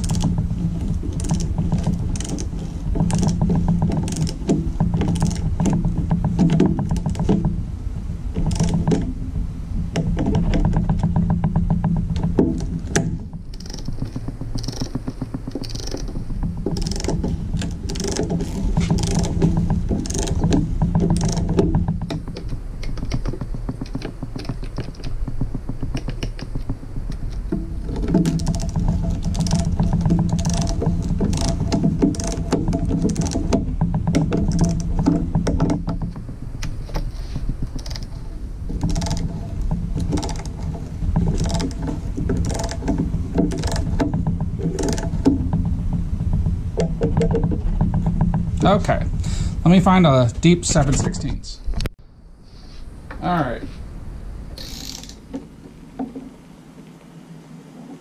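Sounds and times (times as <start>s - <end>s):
socket ratchet clicking: 54.6s - 55.2s.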